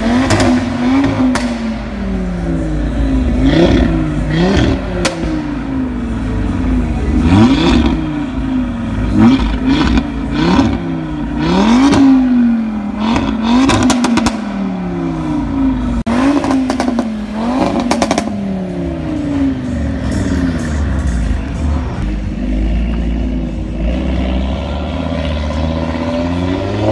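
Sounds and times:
car engine revving: 0.0s - 26.9s
exhaust popping and crackling: 12.9s - 14.6s.

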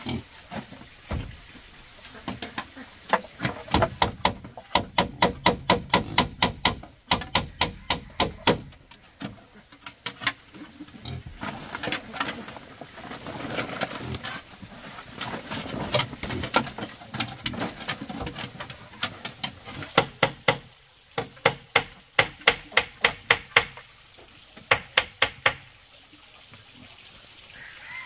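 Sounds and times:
sharp knocks on bamboo: 3.1s - 8.8s, 19.3s - 23.9s, 24.7s - 25.7s
rustling and shuffling: 9.0s - 19.9s.

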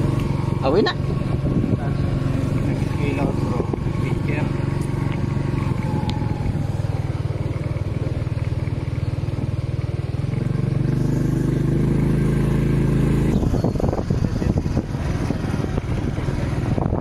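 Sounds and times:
motorcycle engine accelerating: 0.0s - 17.0s
rough rushing noise: 10.5s - 17.0s.

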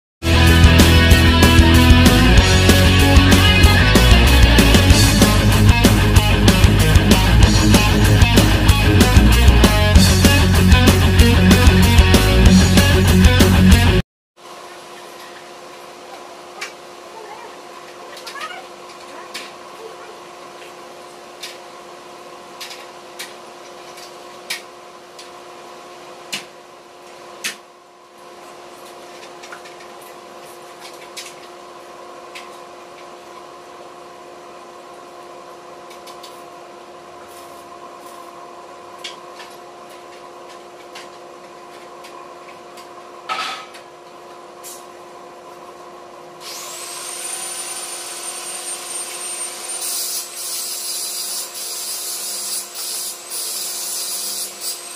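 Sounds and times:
steady machine hum: 0.3s - 23.6s
angle grinder whining: 46.4s - 54.9s.

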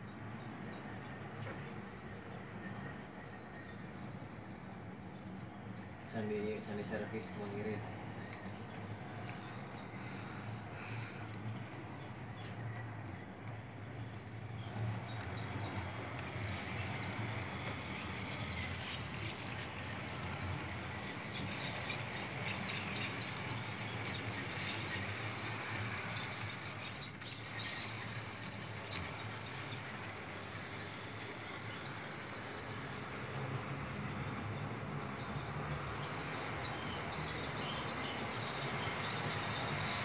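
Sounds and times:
model train rolling on track: 5.7s - 40.0s.

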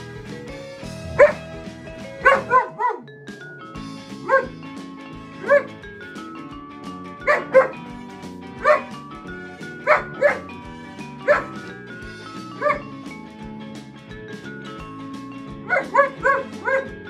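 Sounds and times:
background music: 0.0s - 17.0s
dog barking: 1.0s - 1.6s, 2.2s - 3.1s, 4.2s - 4.6s, 5.4s - 5.8s, 7.2s - 7.8s, 8.6s - 8.9s, 9.8s - 10.6s, 11.2s - 11.7s, 12.6s - 12.9s, 15.7s - 17.0s.

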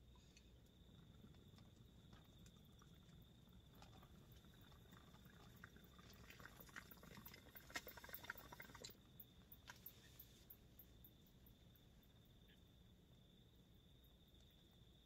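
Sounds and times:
water bubbling in a bong: 0.7s - 9.4s.

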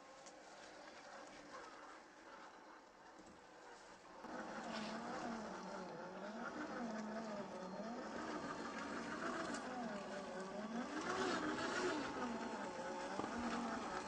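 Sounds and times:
rc car motor whining: 4.2s - 14.0s.

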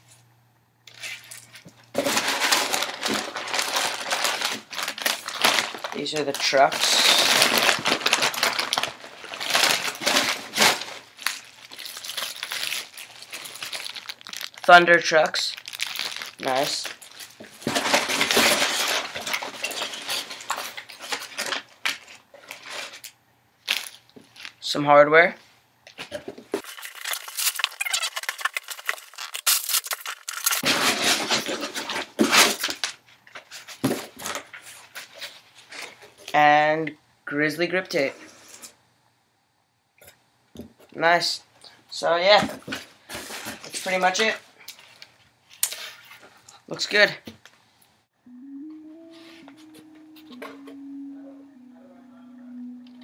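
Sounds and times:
packing paper rustling: 0.9s - 24.6s, 26.0s - 36.3s, 42.4s - 46.6s
plastic wrap crinkling: 0.9s - 24.6s, 25.9s - 36.3s.

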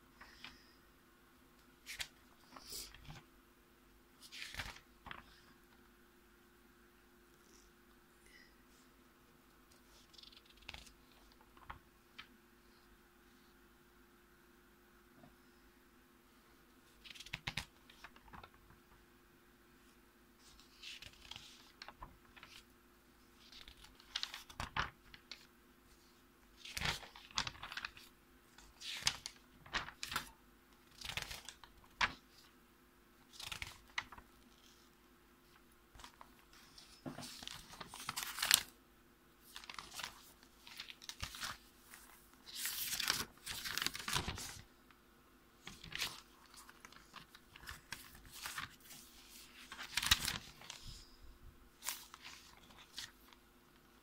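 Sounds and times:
notebook pages turning: 1.8s - 3.3s, 4.2s - 5.4s, 9.7s - 12.3s, 17.0s - 18.7s, 20.4s - 22.7s, 23.4s - 25.5s, 26.6s - 30.3s, 30.9s - 32.5s, 33.3s - 34.8s, 36.0s - 38.7s, 39.5s - 44.6s, 45.6s - 51.1s, 51.8s - 53.4s.

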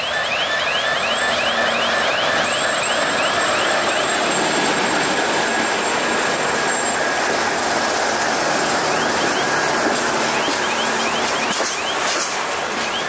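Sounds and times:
freight train wheels rumbling: 0.6s - 13.0s
wheels squeaking: 2.4s - 13.0s.

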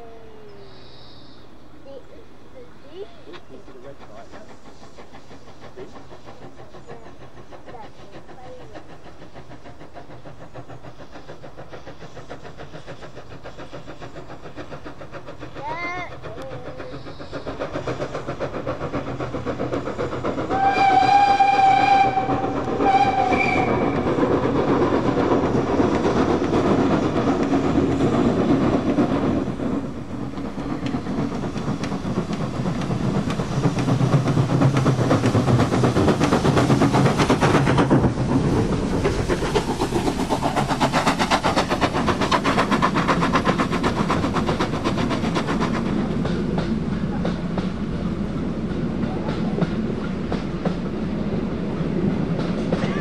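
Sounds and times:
steam locomotive working hard: 0.0s - 53.0s
steam whistle blasts: 20.5s - 24.1s.

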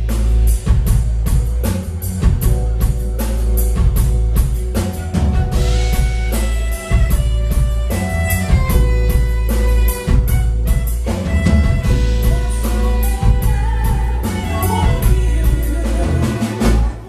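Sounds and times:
drum kit beat: 0.0s - 17.0s
live band playing: 0.0s - 17.0s
saxophone: 4.6s - 17.0s.

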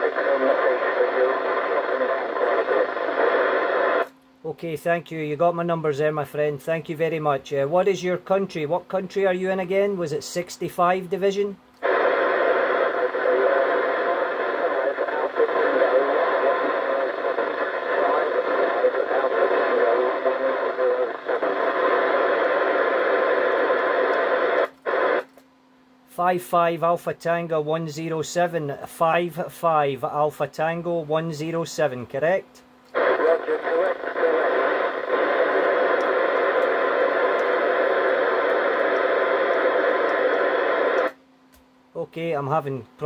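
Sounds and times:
faint garbled radio voice: 0.0s - 4.7s, 11.8s - 25.2s, 32.2s - 41.1s
radio static and hiss: 0.0s - 25.4s, 26.1s - 41.2s.

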